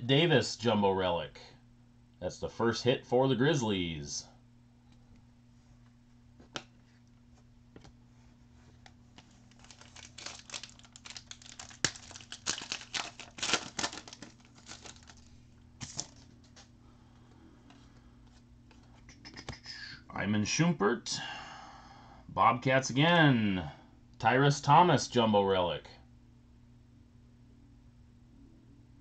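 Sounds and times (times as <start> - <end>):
foil wrapper tearing and crinkling: 9.3 - 16.3.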